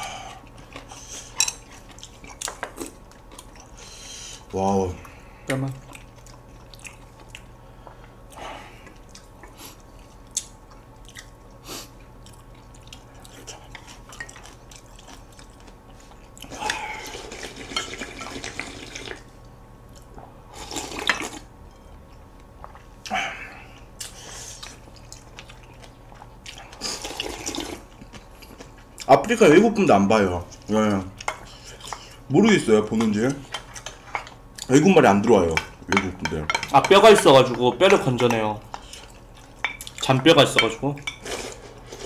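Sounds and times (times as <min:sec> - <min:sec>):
soup slurping: 0:16.9 - 0:19.2, 0:26.8 - 0:27.8.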